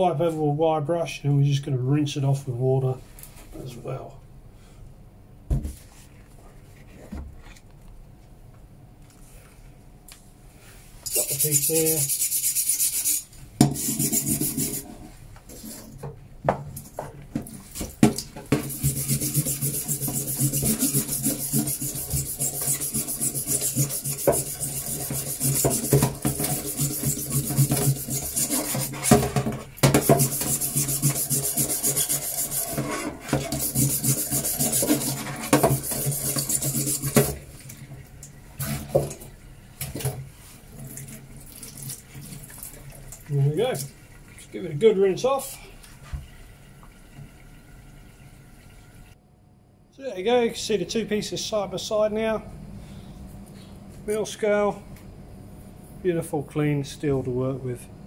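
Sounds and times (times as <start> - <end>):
wire brush scrubbing steel plate: 11.1 - 15.0, 18.5 - 37.4.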